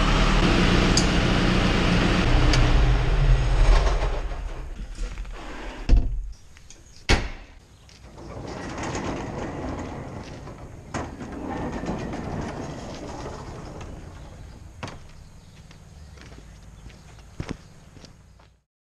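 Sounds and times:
wooden doors scraping shut: 2.6 - 6.4, 7.0 - 15.1.

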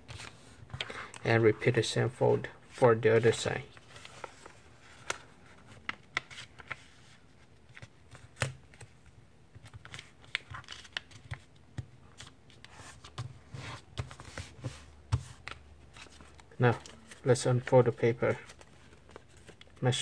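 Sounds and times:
paper rustling and crinkling: 3.2 - 8.9, 12.2 - 19.8.

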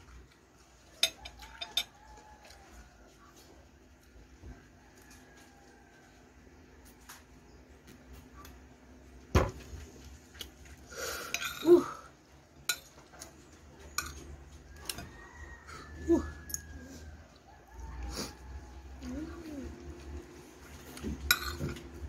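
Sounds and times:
metal spoon clinking on a plate: 1.0 - 2.0, 11.3 - 11.7, 12.7 - 13.0, 13.9 - 14.2, 21.2 - 21.8.

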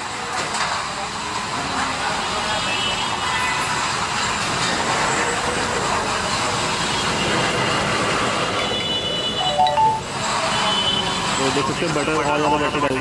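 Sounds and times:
loud high tone: 9.4 - 10.2.

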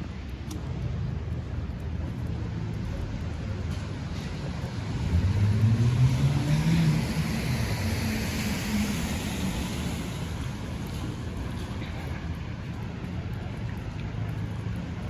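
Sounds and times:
vehicle engine accelerating: 4.8 - 10.4
tyre hiss on wet road: 4.8 - 10.8.

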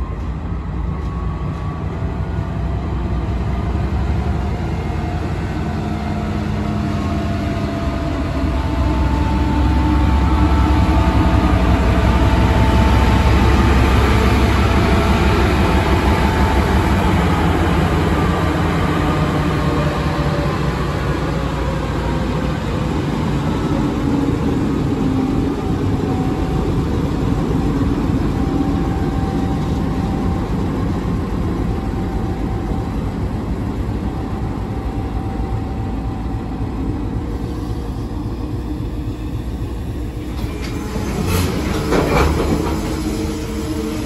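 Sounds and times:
diesel locomotive engine: 0.0 - 44.0
wheels clattering over rails: 40.3 - 43.2.

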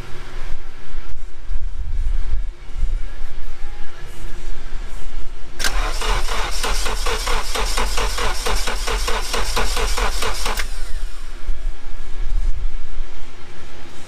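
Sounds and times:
engine starter cranking: 5.6 - 11.2.

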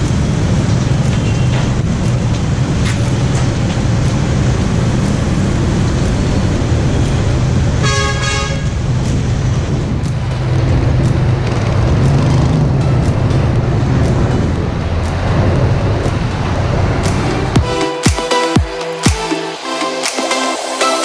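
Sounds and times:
street traffic engines: 0.0 - 21.0
vehicle horn honking: 7.8 - 8.8.

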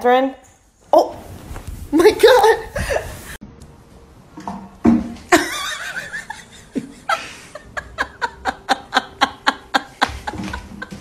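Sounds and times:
person laughing: 2.7 - 3.3, 5.3 - 11.0.

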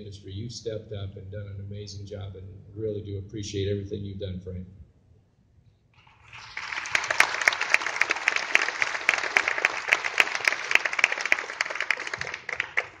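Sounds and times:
audience applauding: 6.0 - 13.0
loud regular claps: 6.0 - 13.0.

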